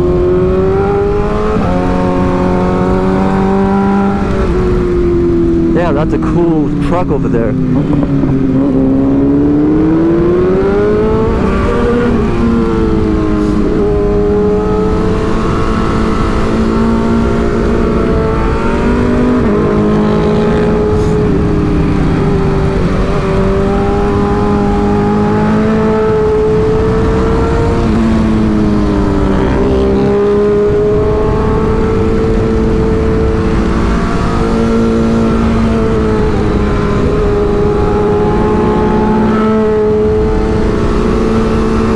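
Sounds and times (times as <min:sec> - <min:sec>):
motorcycle engine revving: 0:00.0 - 0:41.9.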